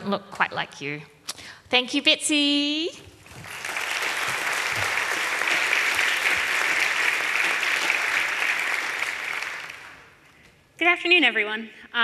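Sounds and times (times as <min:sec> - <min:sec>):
audience applauding: 0:03.2 - 0:10.3.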